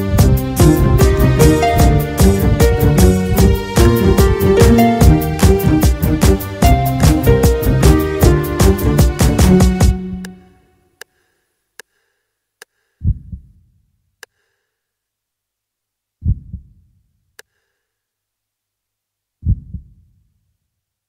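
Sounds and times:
low heartbeat-like thumps: 0.1 - 10.2, 13.0 - 13.6, 16.2 - 16.8, 19.4 - 20.1.

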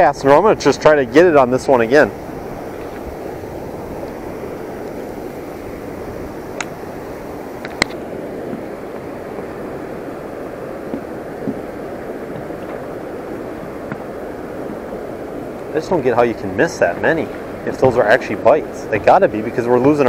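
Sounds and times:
wind: 0.0 - 20.0.

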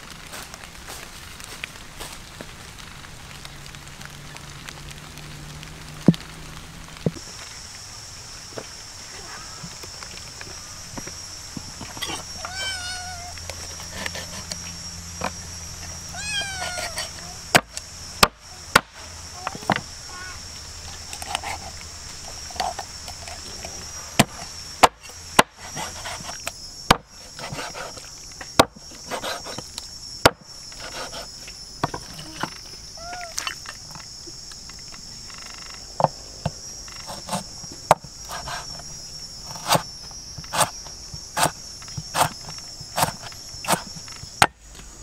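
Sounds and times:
high drone of insects: 0.0 - 45.0
cleaver chopping on wooden block: 41.4 - 44.6.

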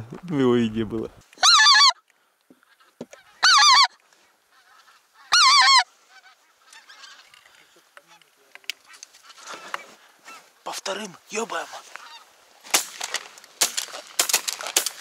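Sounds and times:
geese honking: 1.4 - 10.5, 11.6 - 12.4.

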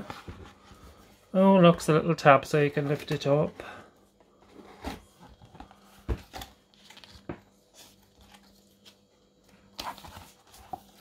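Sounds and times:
paper and cardboard rustling: 0.0 - 1.3, 4.4 - 11.0.

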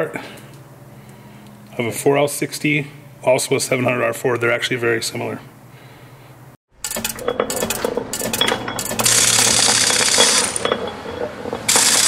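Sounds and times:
metallic gear clicking and clatter: 6.8 - 10.9, 11.7 - 12.0.

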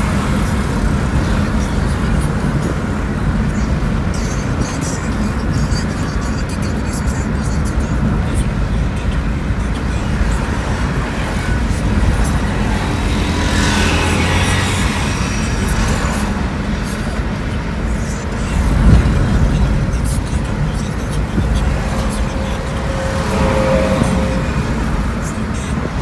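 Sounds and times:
busy traffic outside: 0.0 - 26.0
car engine and road rumble: 0.0 - 26.0
truck passing: 0.0 - 26.0.

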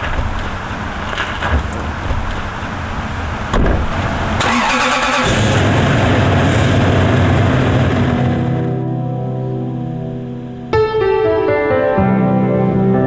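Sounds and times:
car door shutting: 0.0 - 4.1
car engine starting and idling: 0.0 - 9.0.

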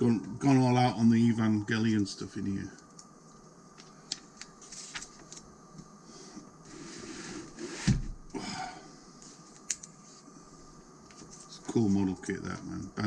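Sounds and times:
magazine page rustling: 4.0 - 5.5.

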